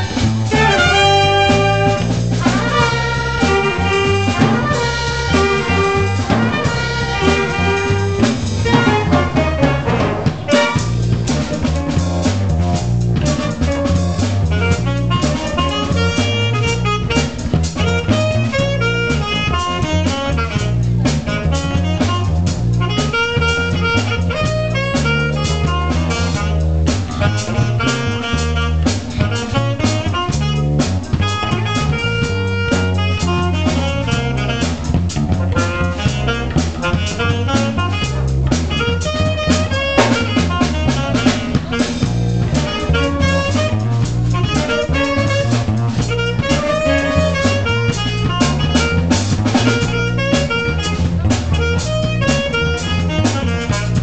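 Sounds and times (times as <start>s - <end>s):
drum kit: 0.0s - 54.0s
jazz band playing funk: 0.0s - 54.0s
trumpets and saxophones riff: 0.0s - 54.0s.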